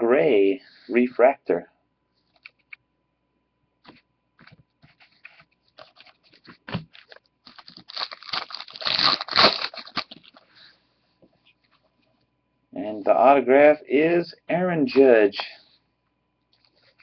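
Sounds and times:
foil wrapper crinkling: 5.8s - 10.5s.

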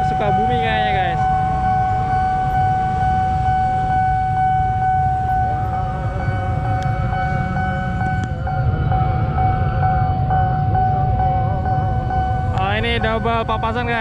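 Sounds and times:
low rumble: 0.0s - 14.0s
pulsing electronic warning tone: 0.0s - 14.0s
wavering alarm tone: 0.0s - 14.0s.

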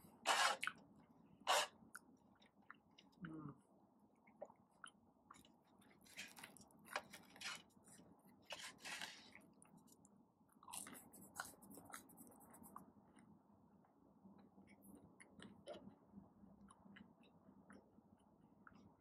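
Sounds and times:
chewing food: 1.7s - 3.3s, 4.2s - 12.9s, 14.4s - 16.0s, 16.6s - 19.0s.

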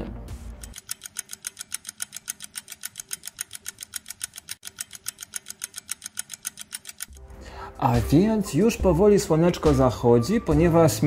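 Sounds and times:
fast clock ticking: 0.5s - 7.2s.

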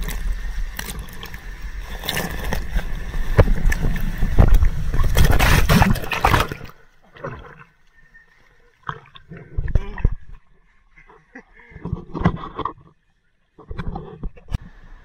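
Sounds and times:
water rushing and splashing: 0.0s - 10.4s.

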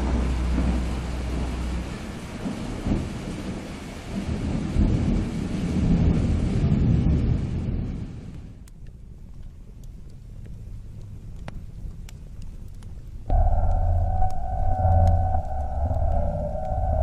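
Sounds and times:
thunder rumbling: 0.0s - 8.5s, 13.3s - 17.0s
steady rain hiss: 0.0s - 17.0s
deep low hum: 13.3s - 17.0s.

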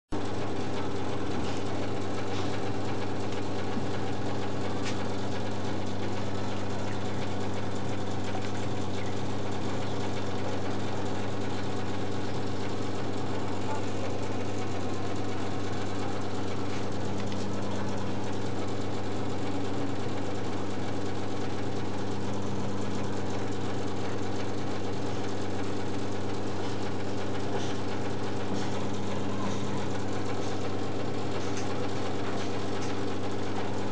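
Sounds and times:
low machine hum: 0.1s - 33.9s.

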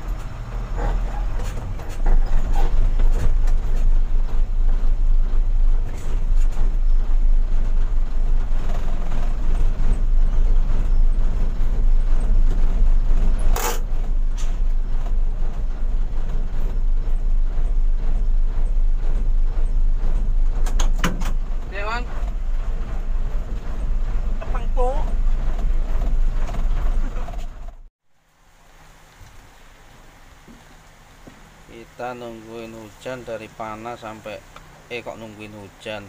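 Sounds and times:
truck diesel engine running: 0.0s - 27.9s.

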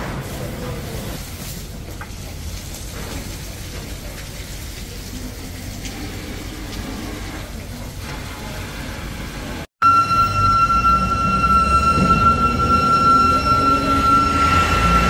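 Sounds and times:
water spraying from fire hoses: 0.0s - 9.7s.

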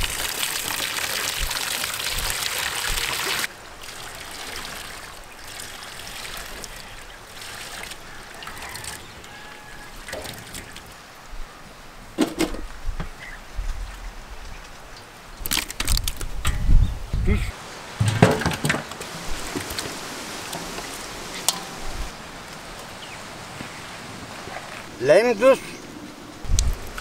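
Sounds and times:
water splashing from bucket: 0.0s - 9.0s, 9.9s - 10.9s
water trickling and sloshing: 0.0s - 11.2s, 17.6s - 25.0s.

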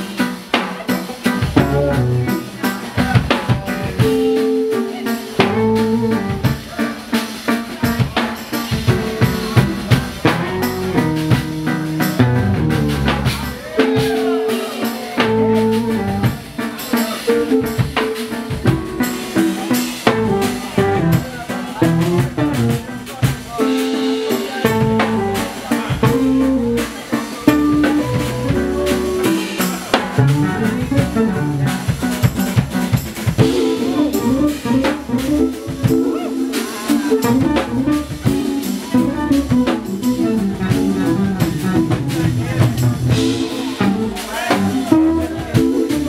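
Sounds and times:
electric bass: 0.0s - 14.3s, 15.2s - 46.0s
drum kit: 0.0s - 46.0s
synthesizer keyboard: 3.7s - 32.5s.

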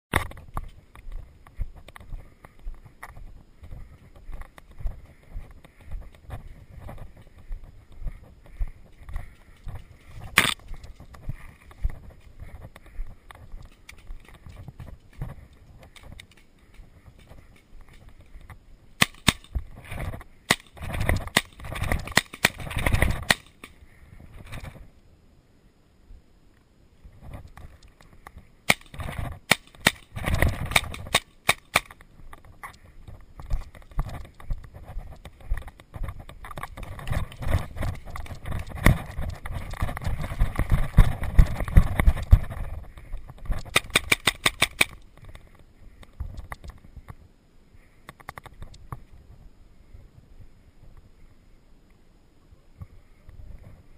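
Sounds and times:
scuffing footsteps: 0.2s - 18.6s
paintball marker shots: 19.0s - 19.6s, 20.5s - 23.8s, 28.7s - 32.0s, 43.6s - 45.0s.

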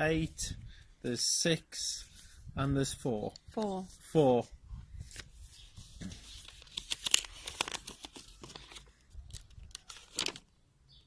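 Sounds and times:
paper crinkling and rustling: 5.0s - 10.5s.

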